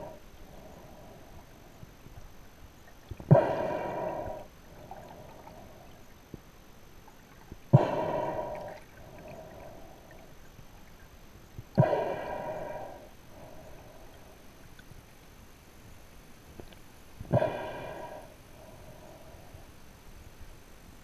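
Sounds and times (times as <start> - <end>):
scuba regulator breathing underwater: 3.3 - 5.8, 7.8 - 10.0, 11.8 - 14.3, 17.3 - 19.6.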